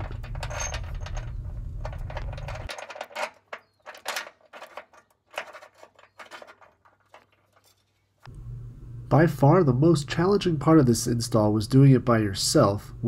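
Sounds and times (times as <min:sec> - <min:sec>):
low hum: 0:00.0 - 0:02.7, 0:08.3 - 0:11.6
metallic clicks and rattles: 0:00.0 - 0:08.2.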